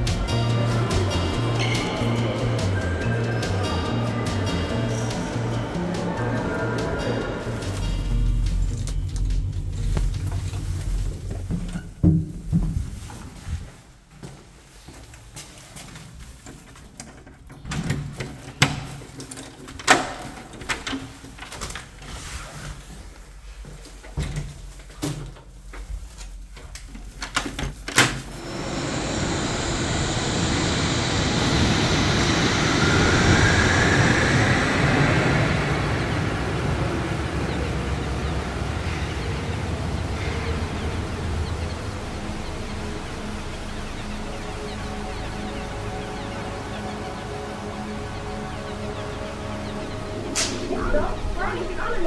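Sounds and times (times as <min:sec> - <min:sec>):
suspension railway train running: 0:00.0 - 0:12.0, 0:28.3 - 0:52.0
faint rising whine: 0:28.3 - 0:52.0.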